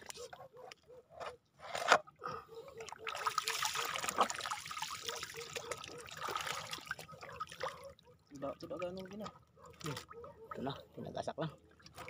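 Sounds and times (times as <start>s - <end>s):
water splashing and trickling: 2.5s - 12.0s.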